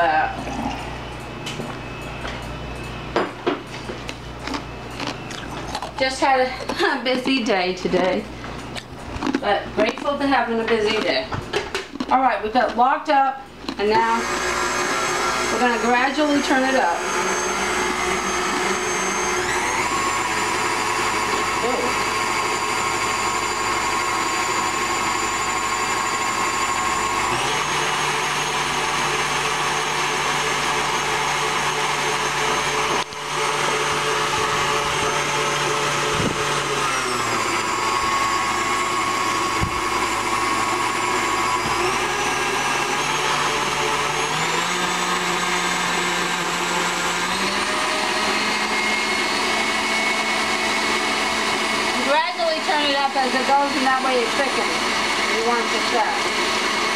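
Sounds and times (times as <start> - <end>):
stand mixer motor whine: 13.8 - 56.9.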